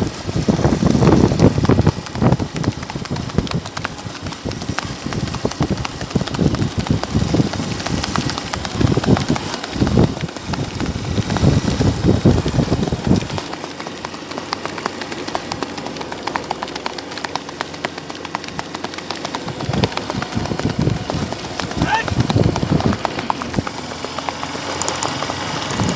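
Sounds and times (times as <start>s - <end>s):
hooves on dirt track: 0.0s - 25.9s.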